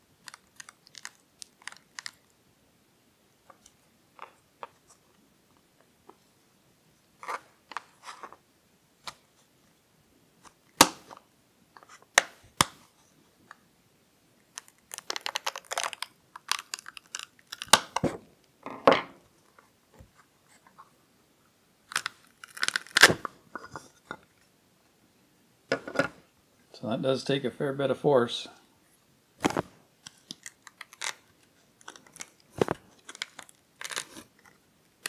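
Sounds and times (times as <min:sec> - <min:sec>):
silicone crackling and tearing: 0:00.2 - 0:02.3, 0:14.5 - 0:18.0, 0:21.9 - 0:23.2, 0:29.4 - 0:34.6.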